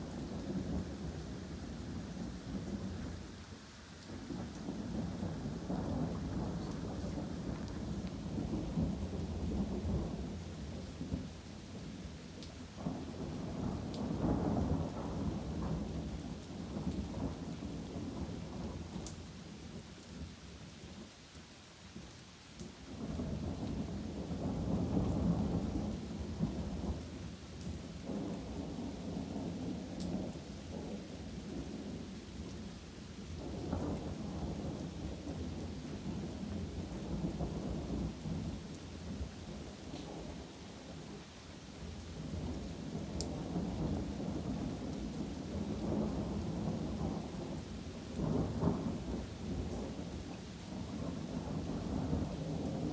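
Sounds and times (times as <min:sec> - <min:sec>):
steady rain: 0:00.0 - 0:52.9
thunder rumbling: 0:04.1 - 0:11.4, 0:23.0 - 0:41.2, 0:42.2 - 0:52.9
raindrops ticking: 0:12.3 - 0:19.3.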